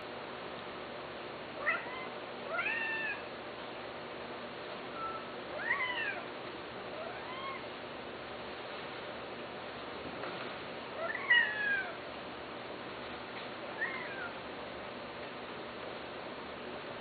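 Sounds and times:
steady background hiss: 0:00.0 - 0:17.0
cat meowing: 0:01.6 - 0:03.2, 0:05.6 - 0:06.3, 0:07.0 - 0:07.7, 0:11.0 - 0:12.0, 0:13.8 - 0:14.4.

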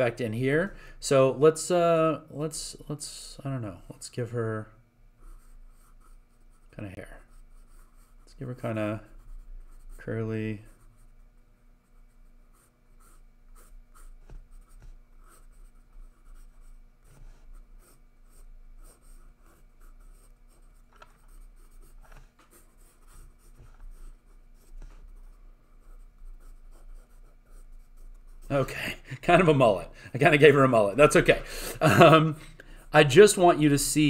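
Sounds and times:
pencil scratching on paper: 0:05.2 - 0:28.7.

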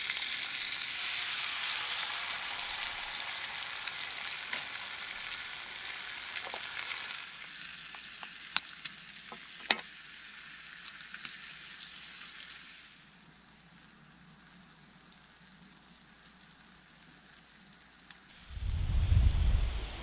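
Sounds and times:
food sizzling in skillet: 0:00.0 - 0:20.0
loud low rumble: 0:18.5 - 0:20.0.

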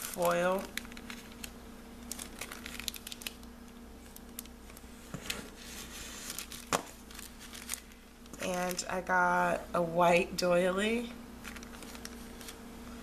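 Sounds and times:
plastic bags crinkling: 0:00.0 - 0:09.0, 0:11.4 - 0:12.6.

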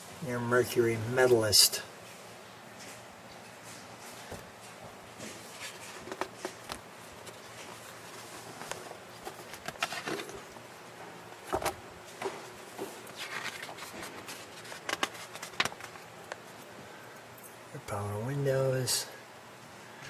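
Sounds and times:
glossy paper pages rustling: 0:02.8 - 0:17.0.

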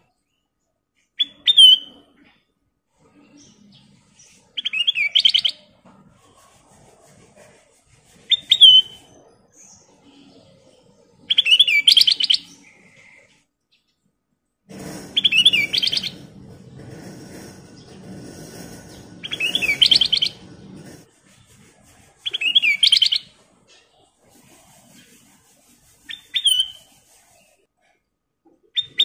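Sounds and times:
bird singing whistled phrases: 0:01.2 - 0:01.9, 0:08.3 - 0:09.0.

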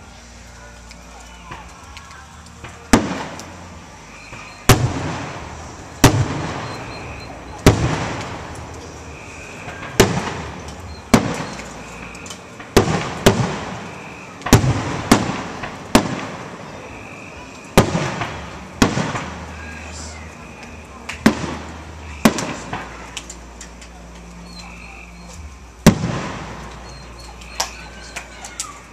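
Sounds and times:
firework shells booming: 0:02.6 - 0:03.7, 0:04.3 - 0:19.6, 0:20.6 - 0:23.6, 0:25.8 - 0:27.8.

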